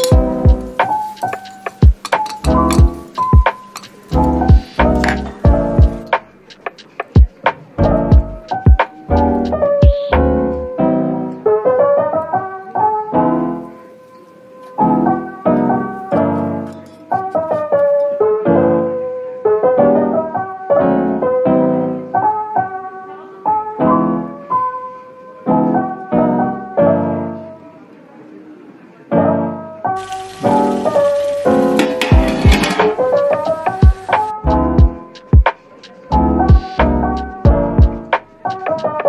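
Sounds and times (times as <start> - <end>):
piano music: 0.0 - 28.0, 29.1 - 39.0.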